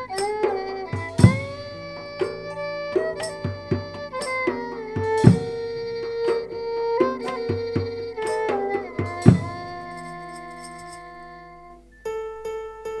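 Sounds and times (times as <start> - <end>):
heavy low drum strokes: 0.0 - 10.3
hand-drum beats: 0.0 - 11.2
held chord: 0.0 - 13.0
sliding melody: 0.0 - 13.0.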